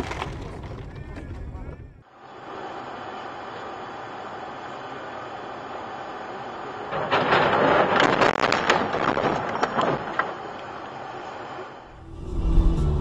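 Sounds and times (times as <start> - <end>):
road noise inside car: 2.0 - 7.0.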